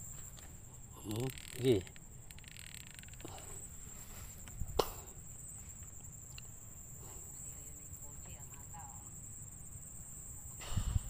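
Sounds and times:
faint high-pitched insect buzzing: 0.0s - 11.0s.

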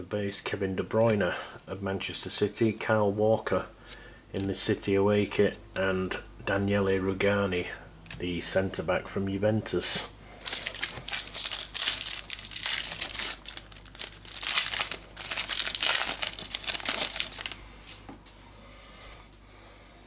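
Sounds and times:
wrapper crinkling and tearing: 10.4s - 17.6s.

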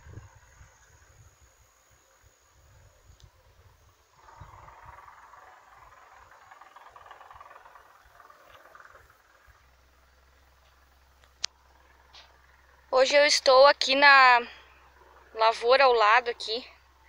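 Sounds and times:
wind rumble on microphone: 0.0s - 6.3s
insects buzzing: 0.0s - 17.0s.

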